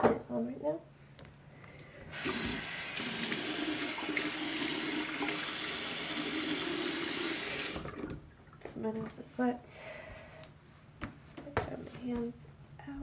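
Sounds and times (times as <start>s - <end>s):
faucet water running into sink: 2.1s - 8.2s.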